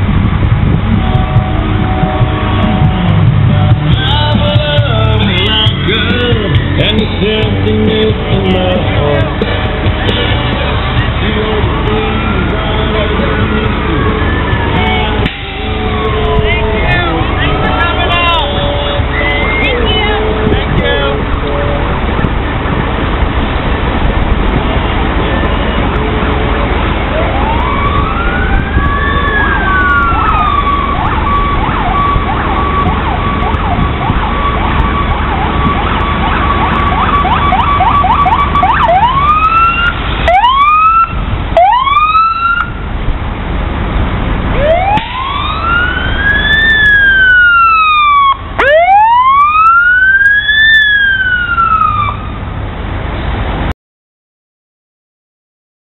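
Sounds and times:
low rumble: 0.0 - 49.6
electronic emergency sirens: 0.2 - 3.9, 25.1 - 42.9, 44.5 - 52.4.

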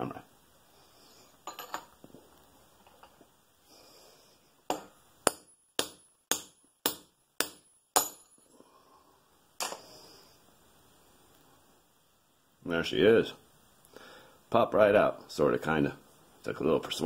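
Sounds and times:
hammer striking steel punch: 4.7 - 8.4.

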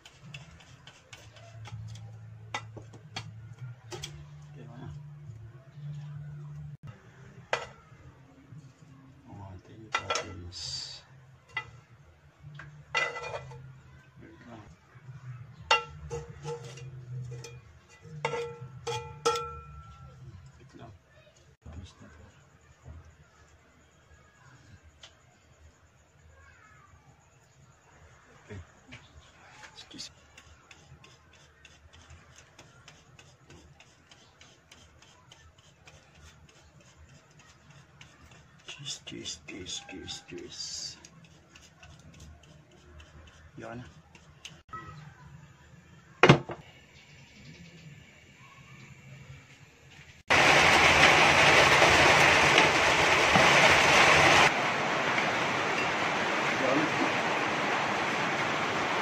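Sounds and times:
cheese grating on metal grater: 0.0 - 2.2, 30.1 - 44.6
metal tongs clinking on pan: 15.7 - 20.1.

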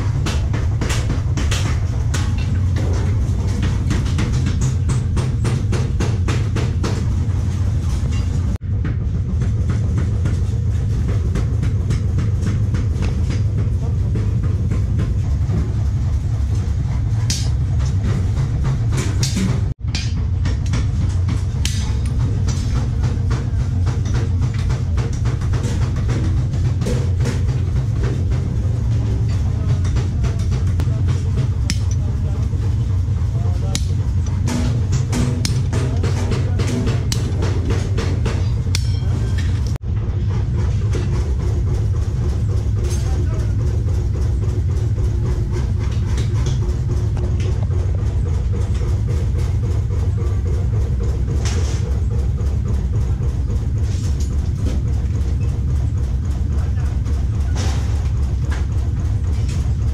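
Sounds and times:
workshop machinery rumble: 0.0 - 59.9
hand tools knocking on steel: 16.5 - 39.8.

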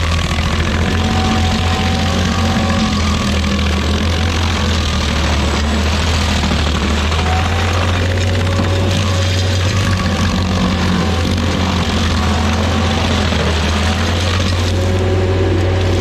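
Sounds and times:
cutter wheel grinding wood: 0.0 - 16.0
stump grinder engine hum: 0.0 - 16.0.

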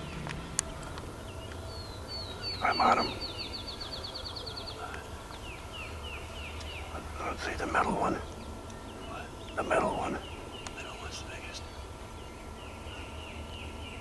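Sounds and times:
songbird trilling: 0.0 - 14.0.

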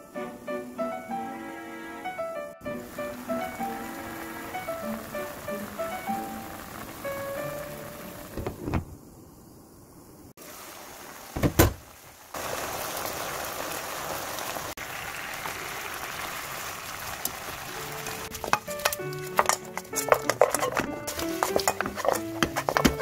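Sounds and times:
sauce sizzling in a frying pan: 2.6 - 8.4, 10.4 - 23.0
loud thump: 11.4 - 11.8
pan clattering on stove: 18.2 - 23.0.

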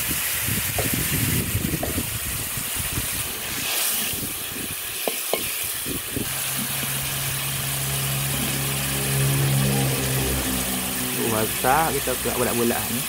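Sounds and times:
chilli paste sizzling in wok: 0.0 - 13.0
engine idling: 6.1 - 13.0.

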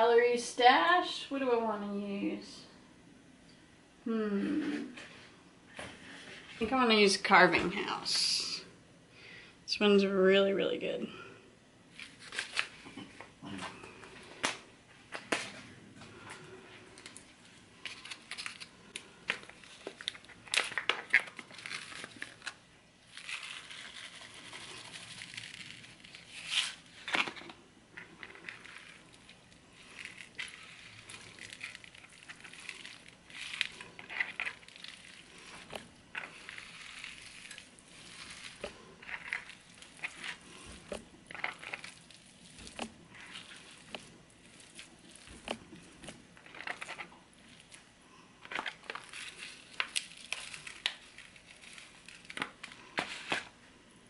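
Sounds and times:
hands squeezing and mixing meat: 11.8 - 54.0
seasoning pouch crackling: 11.9 - 12.9, 16.4 - 53.6.

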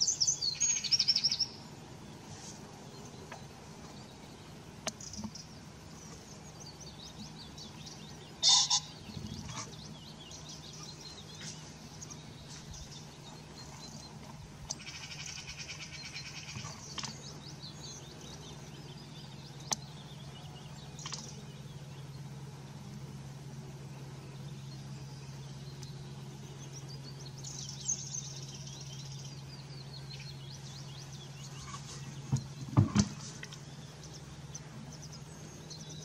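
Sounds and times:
small birds singing and chirping: 0.0 - 36.0
steady low hum: 0.0 - 36.0
pheasant crowing: 8.4 - 9.7.

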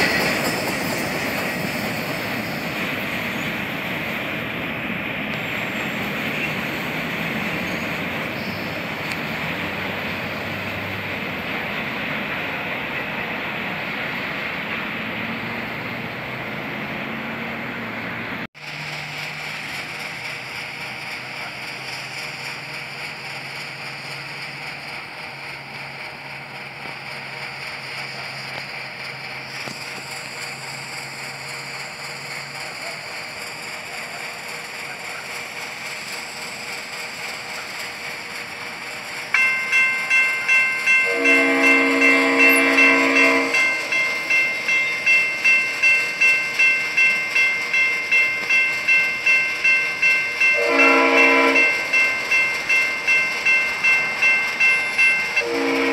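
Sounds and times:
railroad crossing bell ringing: 19.3 - 55.9
locomotive horn blast: 41.0 - 43.8, 50.6 - 51.9, 55.4 - 55.9.

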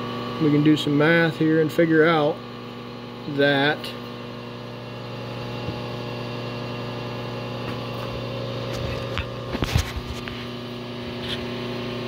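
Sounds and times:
milling machine motor hum: 0.0 - 12.0.

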